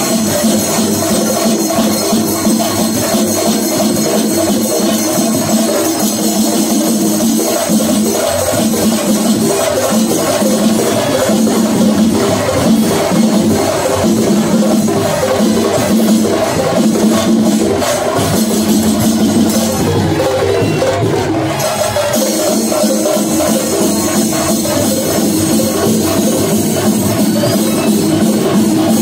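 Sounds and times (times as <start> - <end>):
clashing cymbals: 0.0 - 29.0
drums in fast rhythm: 0.0 - 29.0
pitched tune: 17.1 - 29.0.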